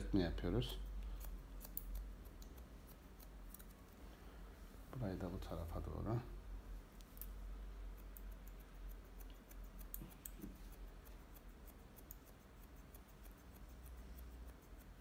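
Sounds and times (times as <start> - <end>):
scissors snipping hair: 0.0 - 4.0, 7.0 - 15.0.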